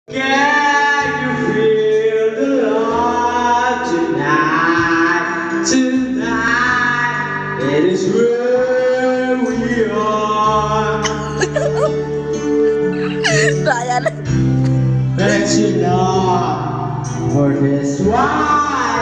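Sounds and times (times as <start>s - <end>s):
man singing karaoke: 0.1s - 12.0s, 15.2s - 19.0s
backing music track: 11.0s - 18.1s.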